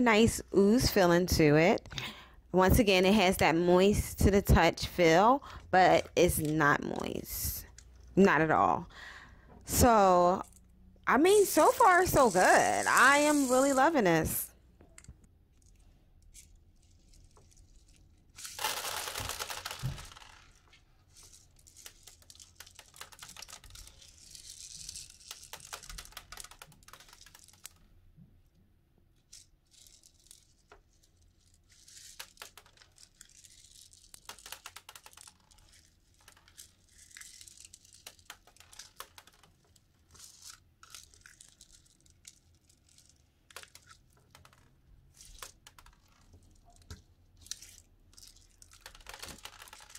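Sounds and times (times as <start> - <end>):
beads clicking: 10.0 - 14.2, 14.8 - 28.0, 29.2 - 49.9.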